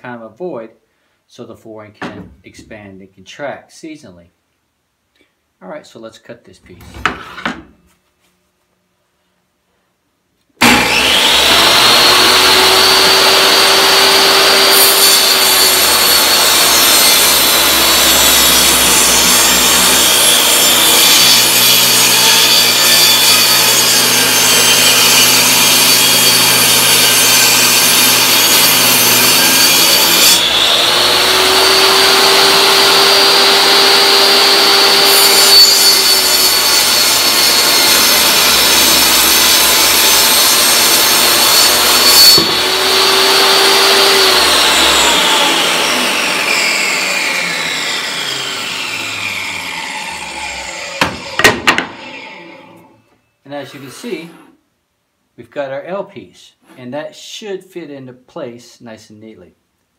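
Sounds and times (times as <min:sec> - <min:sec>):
table saw cutting wood: 0:10.6 - 0:53.0, 0:53.6 - 0:54.6.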